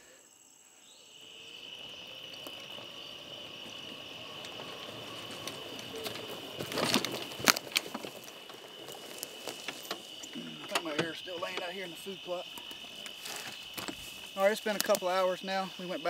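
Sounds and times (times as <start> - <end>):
night insects chorus: 0.0 - 16.0.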